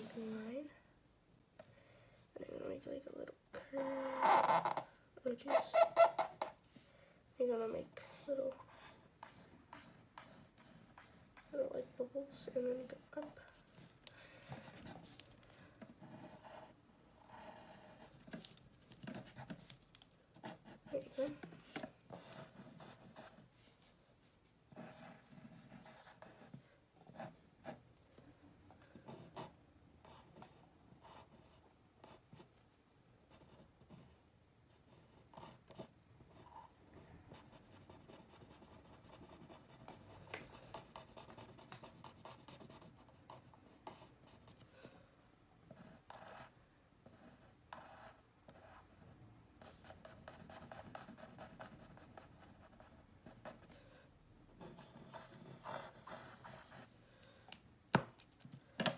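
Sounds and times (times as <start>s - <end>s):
pencil scratching on paper: 7.6s - 13.9s, 14.6s - 23.9s, 24.7s - 27.8s, 29.1s - 32.6s, 33.3s - 34.2s, 34.9s - 44.8s, 45.7s - 49.0s, 49.6s - 57.0s.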